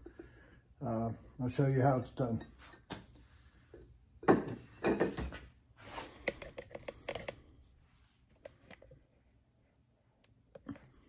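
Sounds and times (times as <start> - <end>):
ceramic knocks and clinks: 4.2 - 5.4.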